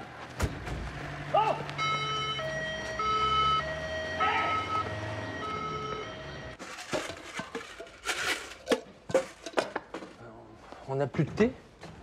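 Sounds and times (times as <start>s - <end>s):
two-tone siren: 1.5s - 6.6s.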